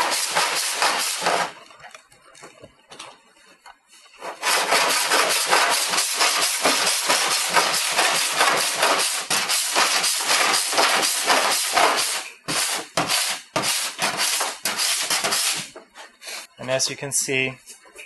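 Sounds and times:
file rasping on metal panel: 4.3s - 15.7s.

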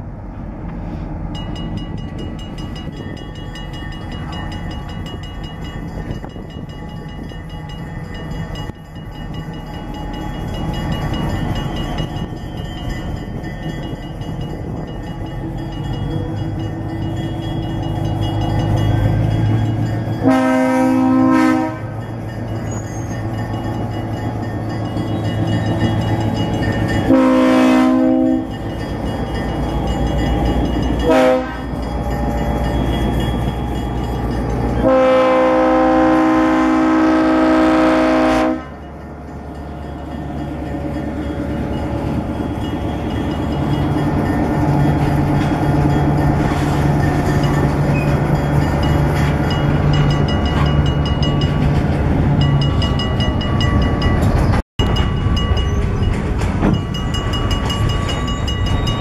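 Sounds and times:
locomotive horn blasts: 20.2s - 22.0s, 27.0s - 28.6s, 31.0s - 31.8s, 34.8s - 38.8s.

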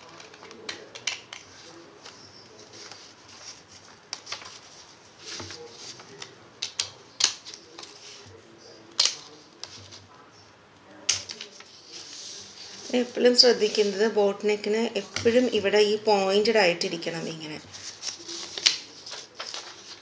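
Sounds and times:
paper rustling: 0.0s - 10.1s, 11.3s - 14.1s, 17.6s - 20.0s.

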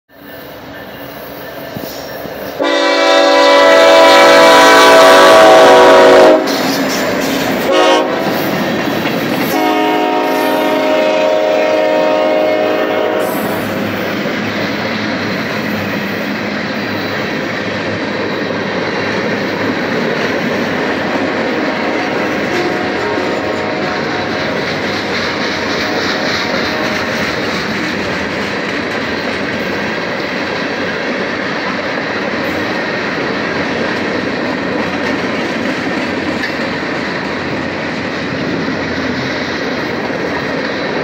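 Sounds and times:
train air horn blasts: 2.6s - 7.0s, 7.6s - 8.5s, 9.4s - 13.9s, 21.1s - 24.6s, 25.3s - 27.3s.

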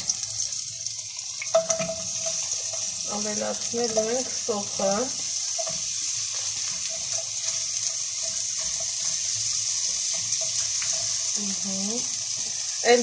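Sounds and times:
onion sizzling in frying pan: 0.0s - 13.0s
spatula stirring: 1.4s - 11.4s.

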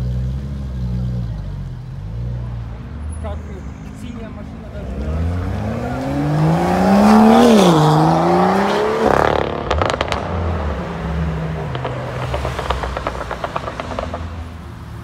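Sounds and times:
car engine accelerating hard: 4.8s - 10.5s
exhaust pops and crackles: 9.0s - 10.8s, 11.5s - 14.6s.

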